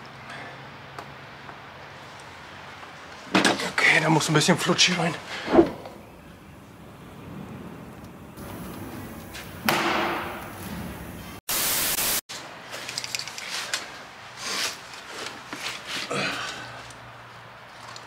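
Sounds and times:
static hiss: 10.3 - 12.2.

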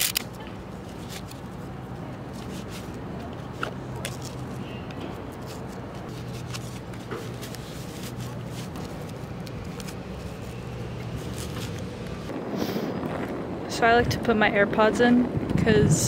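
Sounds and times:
fabric and straps rustling: 0.0 - 12.4
steady low hum: 5.7 - 15.8.

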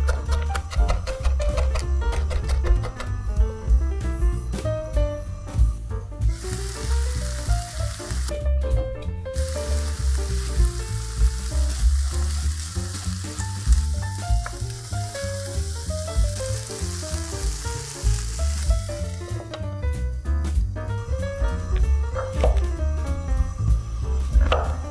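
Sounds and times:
music with pulsing bass: 0.0 - 24.9
food sizzling in a pan: 6.3 - 8.4, 9.4 - 19.5, 21.1 - 24.9.

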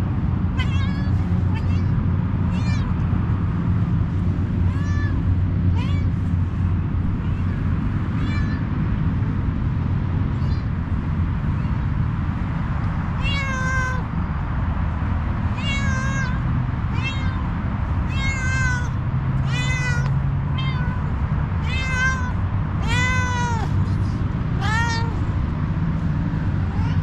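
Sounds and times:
low background rumble: 0.0 - 27.0
cat meowing: 0.5 - 3.0, 4.6 - 6.3, 7.1 - 8.7, 10.3 - 10.7, 11.5 - 11.8, 13.2 - 14.1, 15.5 - 25.3, 26.6 - 27.0.

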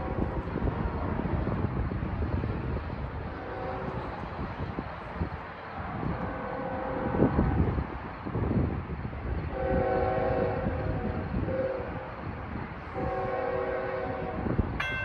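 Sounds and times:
locomotive horn chord: 9.6 - 10.6, 13.0 - 15.0.

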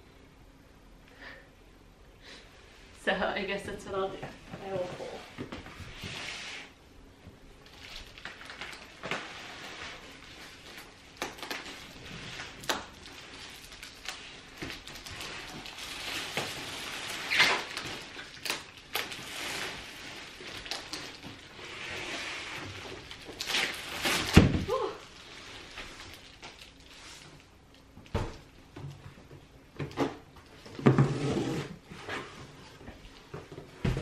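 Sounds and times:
foil packaging crinkling: 7.6 - 22.0, 22.6 - 27.8.

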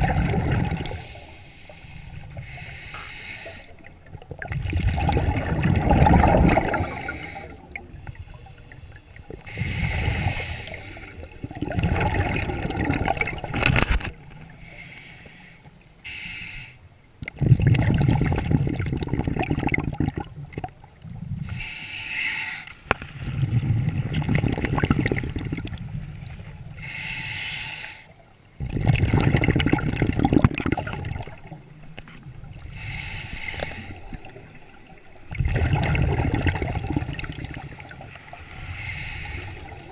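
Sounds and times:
exhaust bubbles rushing: 0.0 - 1.0, 4.3 - 6.9, 11.4 - 13.5, 23.5 - 25.8, 28.6 - 31.5, 35.3 - 37.4
regulator hissing inhale: 0.9 - 4.1, 6.7 - 8.6, 9.5 - 11.3, 14.6 - 16.9, 21.4 - 23.4, 26.8 - 28.2, 32.6 - 35.2, 37.2 - 39.9.

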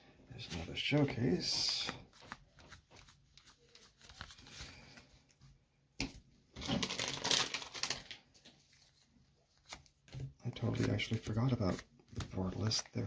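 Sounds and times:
cards rustling: 0.4 - 5.4, 6.6 - 13.0.

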